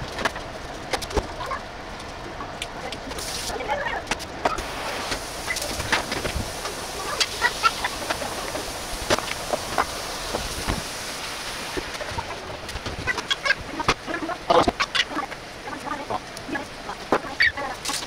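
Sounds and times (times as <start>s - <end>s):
meat sizzling in a frying pan: 4.6s - 12.2s.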